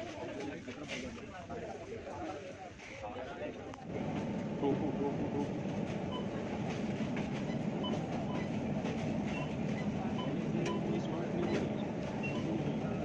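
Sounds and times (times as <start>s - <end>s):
low rumbling background noise: 3.7s - 13.0s.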